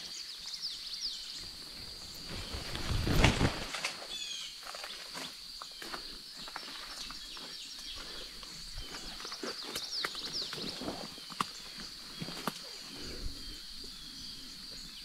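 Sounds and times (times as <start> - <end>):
bird chirps: 4.1 - 15.0.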